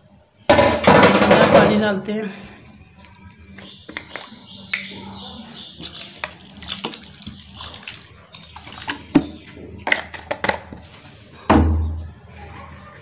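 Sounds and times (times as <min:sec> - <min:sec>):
water pouring and splashing: 0:05.8 - 0:09.5.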